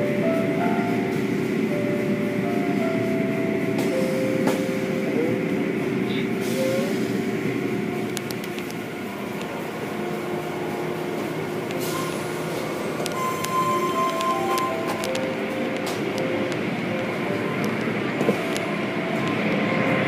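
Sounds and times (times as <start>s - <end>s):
machinery noise: 0.2s - 20.0s.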